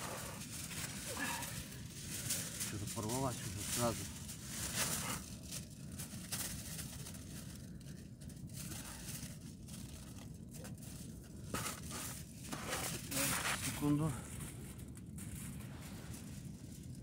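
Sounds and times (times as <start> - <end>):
aluminium foil crinkling and tearing: 0.0 - 17.0.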